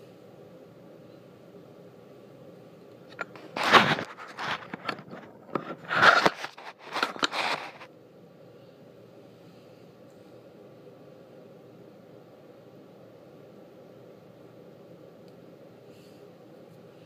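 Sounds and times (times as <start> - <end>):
cloth rubbing on microphone: 3.4 - 7.9.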